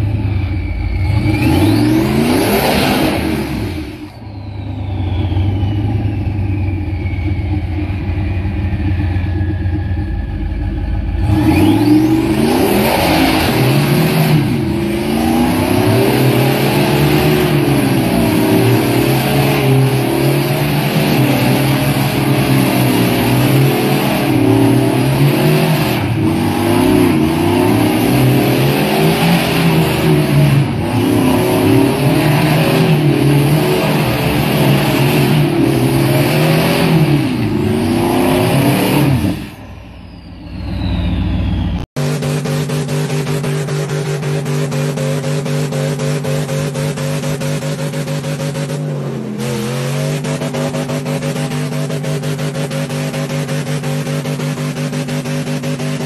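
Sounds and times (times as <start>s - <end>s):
pickup truck engine revving: 0.0s - 56.0s.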